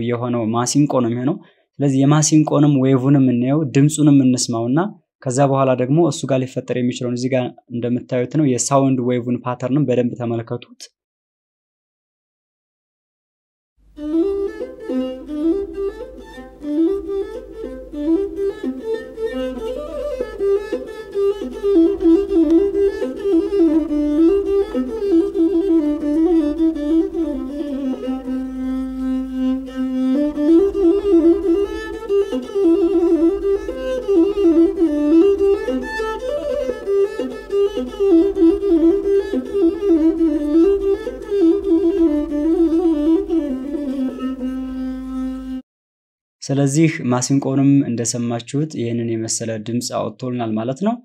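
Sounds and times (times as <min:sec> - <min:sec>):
one-string bowed fiddle melody: 0:13.9 - 0:45.6.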